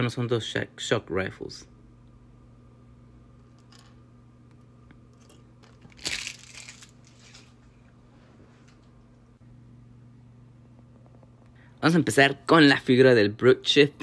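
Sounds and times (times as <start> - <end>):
low electrical hum: 0.0 - 14.0
plastic blocks rattling: 5.2 - 7.5.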